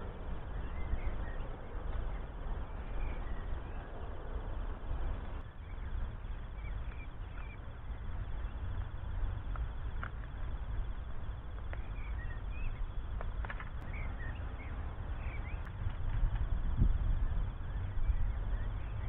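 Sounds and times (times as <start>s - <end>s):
bird chirps: 0.0s - 4.6s, 5.2s - 9.6s, 11.6s - 13.1s, 13.8s - 15.8s, 17.1s - 19.0s
wind rumbling on microphone: 0.0s - 19.0s.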